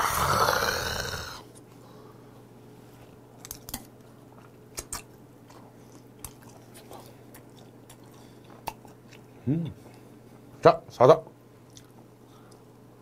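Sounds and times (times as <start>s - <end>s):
person chewing: 3.6s - 10.0s, 11.7s - 12.6s
wet mouth clicks: 4.8s - 5.1s, 5.9s - 6.6s, 7.3s - 9.2s.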